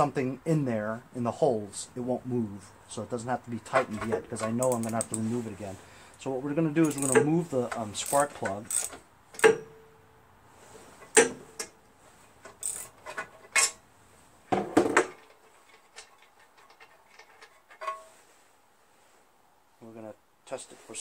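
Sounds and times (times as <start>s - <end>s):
metal tool clinking on engine: 3.8s - 5.3s, 6.7s - 9.9s.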